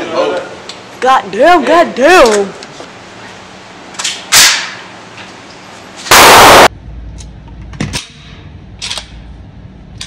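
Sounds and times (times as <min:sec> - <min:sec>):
loud gunshot: 0:06.1 - 0:06.7.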